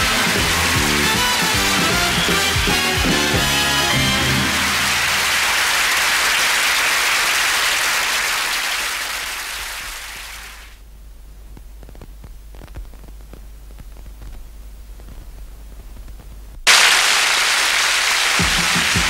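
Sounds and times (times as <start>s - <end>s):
audience applauding: 0.0s - 10.8s, 16.7s - 19.0s
faint low hum: 10.5s - 16.6s.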